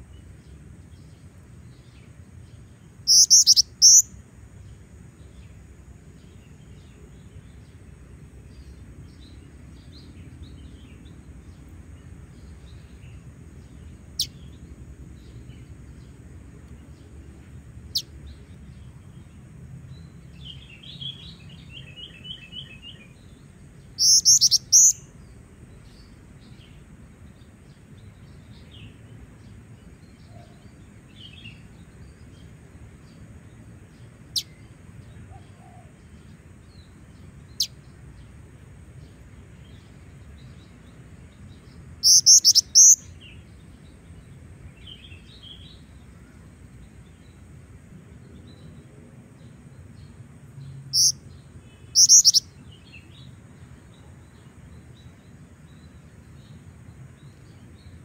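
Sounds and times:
faint chirping of other birds: 0.0s - 58.0s
bird sharp high chirps: 3.1s - 4.1s, 24.0s - 25.1s, 42.0s - 43.2s, 50.9s - 51.2s, 51.8s - 52.5s.

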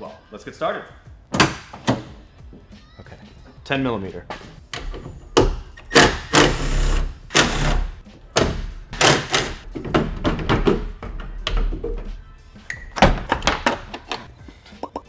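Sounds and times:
knocks of metal and plastic: 8.4s - 12.0s.

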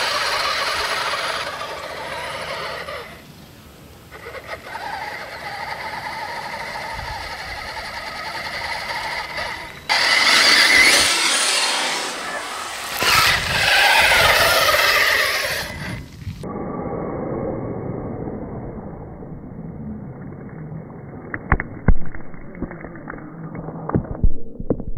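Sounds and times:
toy truck motor whining: 0.0s - 3.2s, 4.1s - 16.1s.

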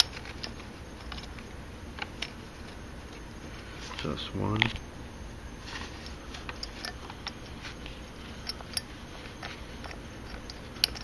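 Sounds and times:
metal clicks and ticks: 8.4s - 11.0s.

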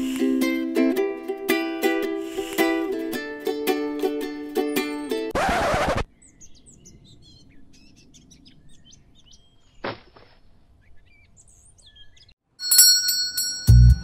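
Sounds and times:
faint birds chirping: 6.1s - 12.4s.

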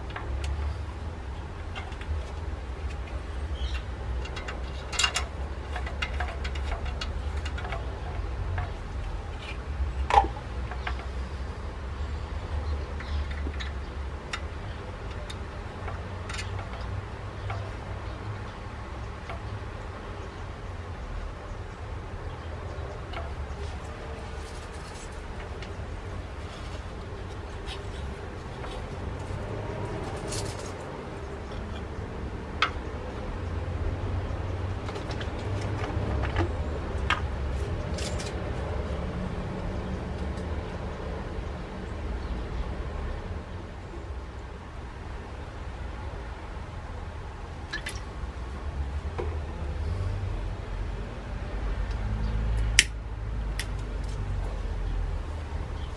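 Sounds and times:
light clicks and taps on metal: 0.0s - 11.2s, 12.8s - 20.3s, 22.4s - 29.4s
low outdoor rumble: 0.0s - 55.9s.

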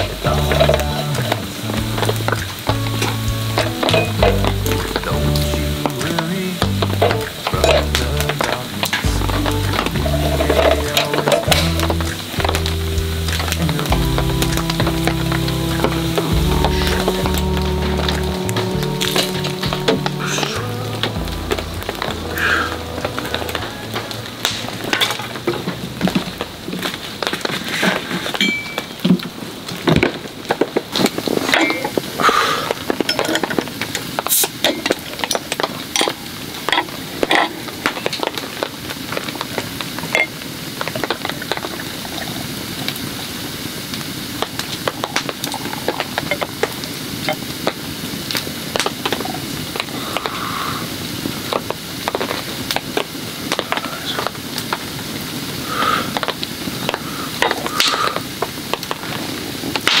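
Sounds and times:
food sizzling over campfire: 0.0s - 60.0s
metal cookware clinking: 3.6s - 4.8s.

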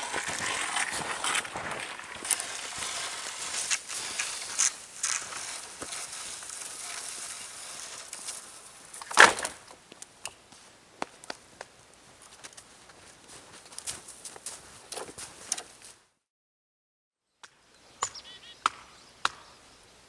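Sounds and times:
footsteps crunching in snow: 0.0s - 9.0s, 10.5s - 16.1s
dry branches rustling and scraping: 0.0s - 16.0s.

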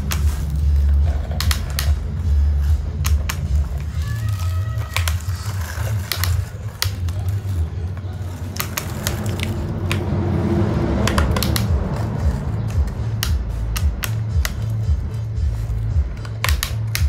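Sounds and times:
steady low rumble: 0.0s - 17.0s
plastic toy clicks and knocks: 1.3s - 2.1s, 3.0s - 7.6s, 11.0s - 14.9s, 16.2s - 17.0s.

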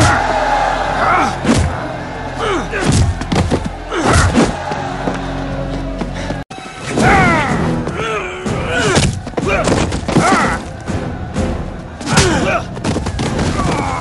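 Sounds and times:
loud yells and shouts: 0.0s - 5.8s
punch and kick impacts: 1.4s - 1.8s, 2.8s - 4.7s.

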